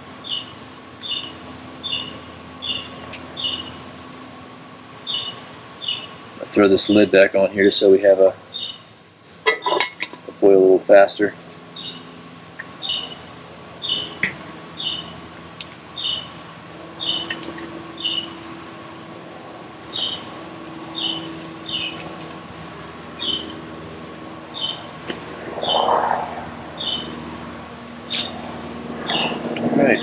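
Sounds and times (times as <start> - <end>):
crickets and insects chirping: 0.0 - 30.0
soft rush: 24.5 - 28.6.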